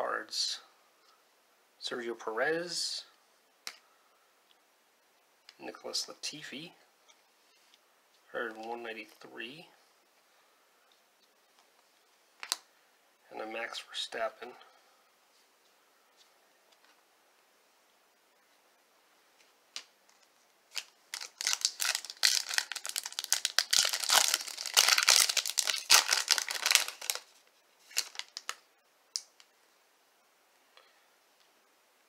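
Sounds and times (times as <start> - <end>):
foil wrapper tearing and crinkling: 20.7 - 28.6.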